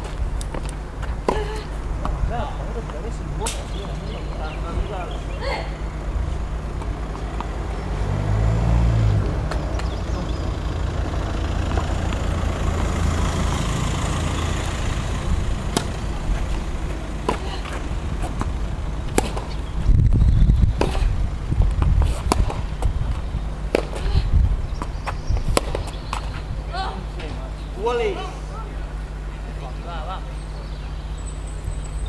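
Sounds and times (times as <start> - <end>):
low rumble: 0.0 - 27.2
tennis ball struck by racquet: 15.6 - 19.6, 20.7 - 21.1, 21.7 - 22.9, 23.7 - 24.2, 24.8 - 26.4.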